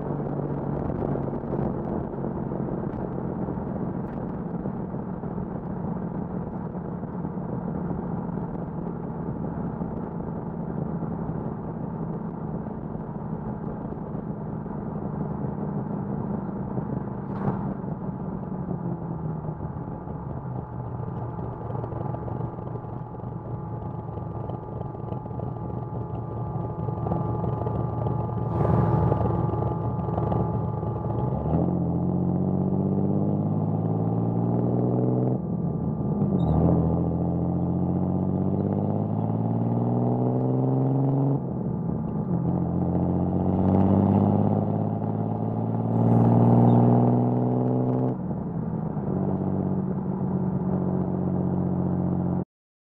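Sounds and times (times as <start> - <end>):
car engine accelerating through gears: 15.4 - 52.4.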